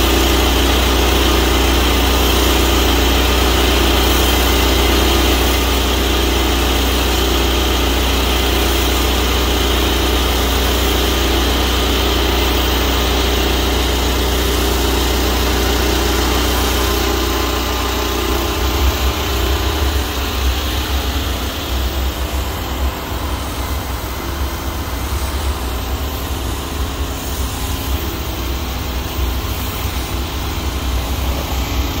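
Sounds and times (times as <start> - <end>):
pressure washer engine drone: 0.0 - 32.0
water spray hiss: 0.0 - 32.0.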